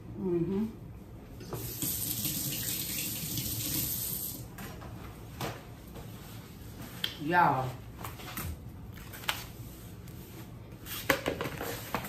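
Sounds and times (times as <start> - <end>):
water running from a tap: 1.6 - 4.4.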